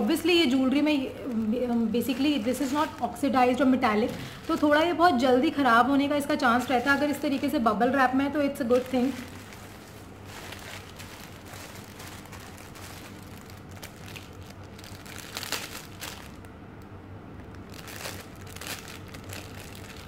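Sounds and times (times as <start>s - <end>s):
bubble wrap crinkling: 0.0s - 16.6s, 17.4s - 20.0s.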